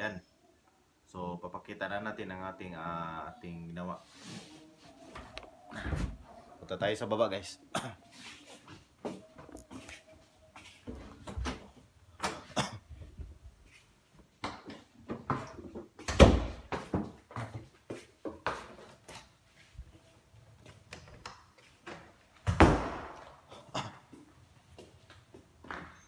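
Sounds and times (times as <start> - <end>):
footsteps: 8.0 - 11.9.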